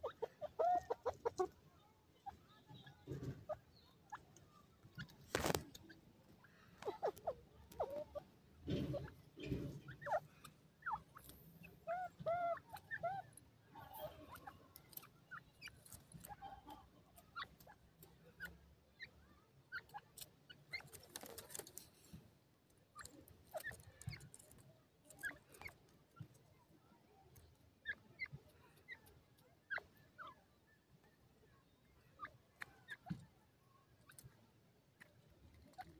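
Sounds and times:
bird chirps: 0:02.2 - 0:17.6.

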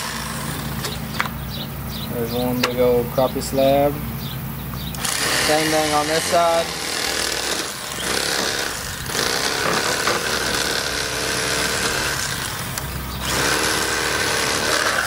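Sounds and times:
electric fillet knife buzzing: 0:04.9 - 0:15.0.

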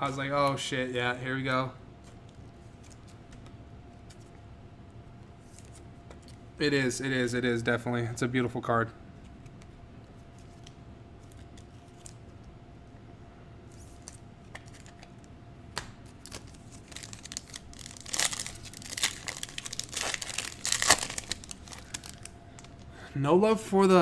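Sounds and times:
foil wrapper crinkling and tearing: 0:16.2 - 0:22.8.

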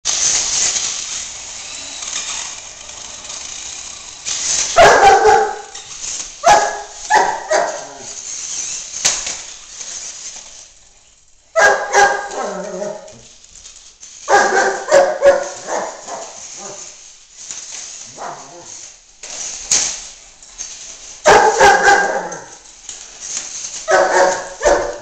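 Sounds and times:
dog barking: 0:04.8 - 0:05.8, 0:06.4 - 0:08.1, 0:11.6 - 0:13.1, 0:14.3 - 0:16.8, 0:18.1 - 0:18.7, 0:21.3 - 0:22.5, 0:23.9 - 0:25.0.

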